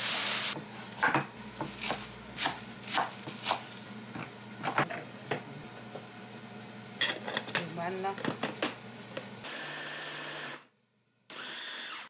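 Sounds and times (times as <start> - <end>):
knife chopping on cutting board: 1.6 - 3.7.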